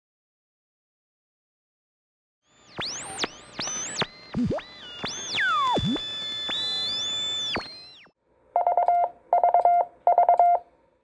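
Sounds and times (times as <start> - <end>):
sweeping electronic tones: 2.5 - 8.2
quick beeps: 2.8 - 10.6.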